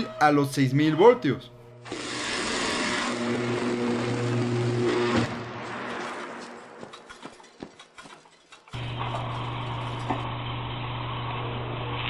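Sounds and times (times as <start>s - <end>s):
electric arc buzzing hiss: 1.8s - 5.4s.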